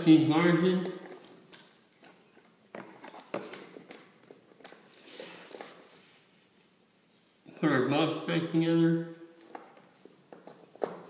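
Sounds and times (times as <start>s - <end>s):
faint clicks taps and scraping: 9.1s - 11.0s.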